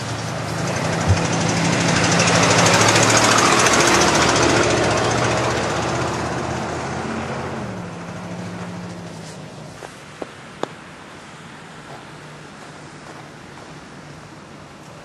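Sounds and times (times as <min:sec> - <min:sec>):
vehicle driving past: 0:00.0 - 0:09.6
short low thump: 0:01.0 - 0:02.0.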